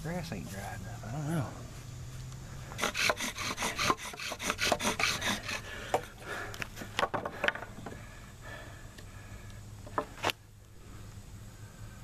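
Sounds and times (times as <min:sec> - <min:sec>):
wooden spindle rasping: 0:02.8 - 0:06.1
wooden clicks and knocks: 0:05.9 - 0:08.0.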